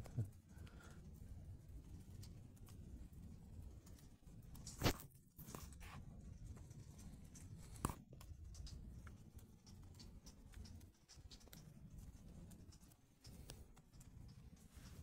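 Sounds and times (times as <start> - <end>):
soft ticks: 7.0 - 15.0.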